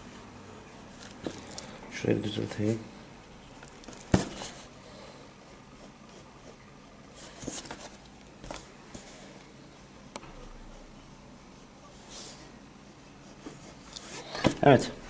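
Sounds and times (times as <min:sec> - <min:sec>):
pencil scratching on paper: 0:05.4 - 0:08.0, 0:09.0 - 0:15.0.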